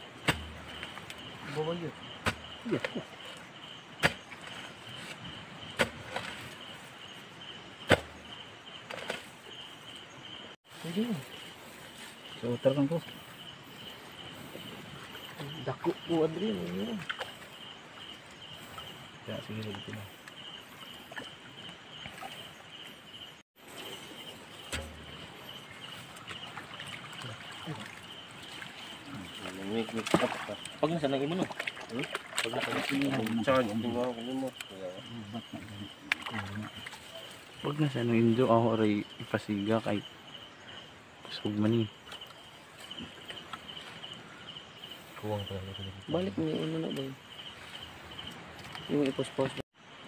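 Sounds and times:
high insect trill: 0.0 - 50.0
pole striking into mud: 0.2 - 0.9, 4.0 - 4.3, 7.9 - 8.2, 24.6 - 25.3
hands sloshing in muddy water: 24.6 - 33.7
low thump: 24.7 - 25.3.

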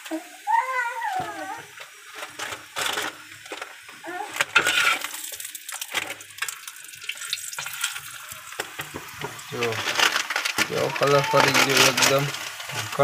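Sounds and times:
oil sizzling and crackling: 0.0 - 13.0.

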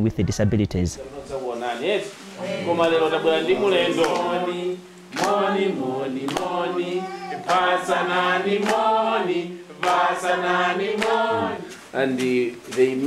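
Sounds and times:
women singing in unison: 2.2 - 13.0
hand claps: 4.0 - 4.4, 5.1 - 5.5, 6.2 - 6.6, 7.4 - 7.7, 8.6 - 8.9, 9.8 - 10.2, 10.9 - 13.0.

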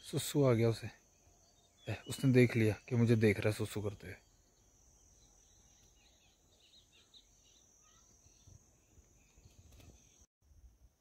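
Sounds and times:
faint bird chirps: 0.0 - 10.3
high insect drone: 0.1 - 10.9.

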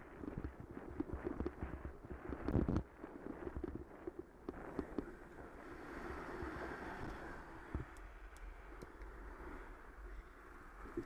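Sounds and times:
bicycle rattling over rough tarmac: 0.0 - 8.3
steady rushing noise: 0.0 - 11.0.

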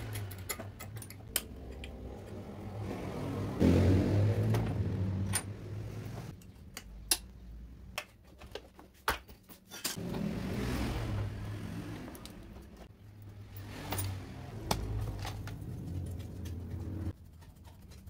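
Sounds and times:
metallic clicks and rattles: 0.0 - 2.4.

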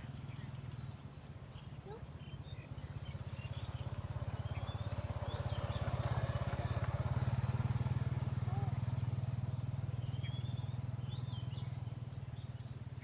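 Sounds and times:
small engine running: 2.5 - 13.0
faint bird chirps: 9.8 - 13.0.

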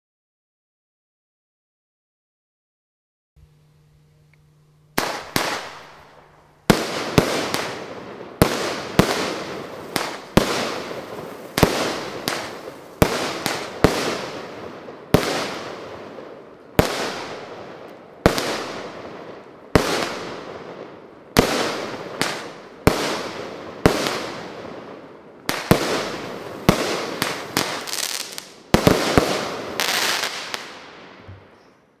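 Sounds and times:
fireworks cake bangs: 6.7 - 14.5.

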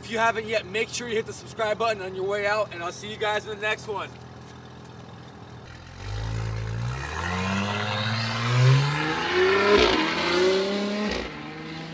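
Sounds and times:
exhaust crack: 3.8 - 11.4
car engine accelerating: 4.6 - 11.9.

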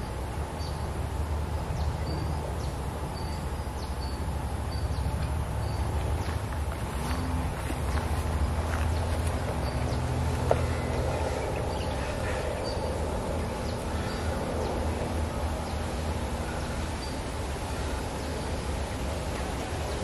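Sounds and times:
low rumble and hiss: 0.0 - 20.0.

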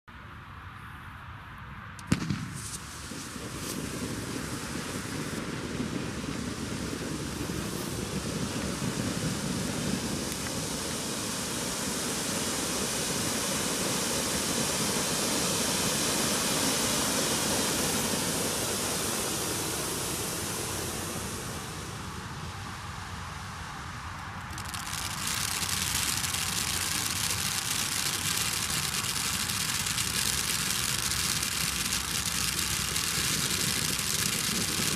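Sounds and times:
sharp crack: 2.0 - 5.5, 24.1 - 34.9
firework fountain hissing: 2.0 - 34.9.

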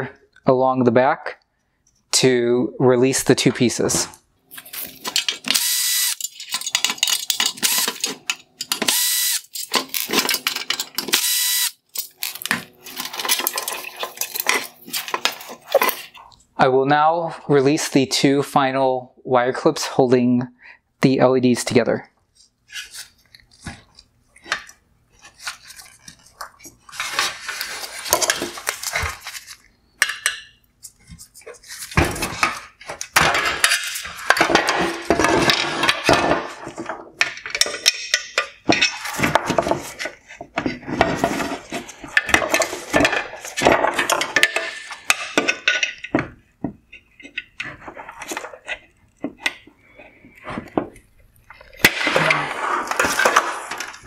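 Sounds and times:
metal parts clattering together: 4.6 - 16.2, 31.2 - 46.3.

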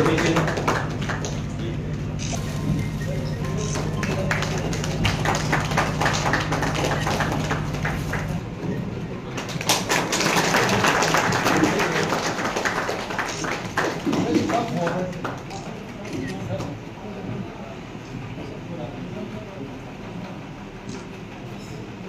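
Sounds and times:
people clapping: 0.0 - 2.1, 3.3 - 8.4, 9.3 - 16.8
steady low hum: 0.0 - 22.0.

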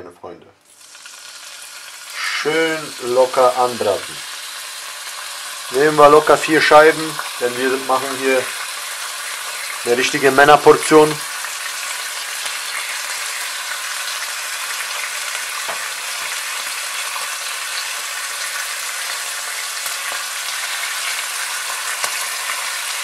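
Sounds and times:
bacon sizzling in a frying pan: 0.6 - 23.0.

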